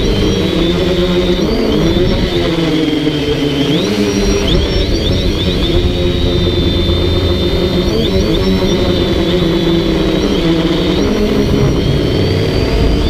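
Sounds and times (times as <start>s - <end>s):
quadcopter propellers buzzing: 0.0s - 13.0s
low rumble: 5.1s - 10.0s.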